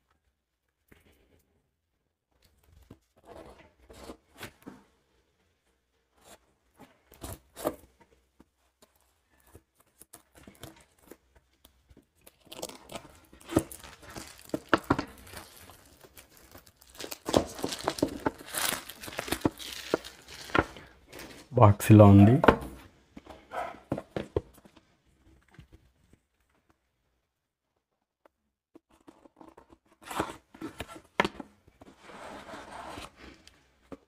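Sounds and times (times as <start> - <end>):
plastic wrap crinkling and tearing: 10.0 - 21.5.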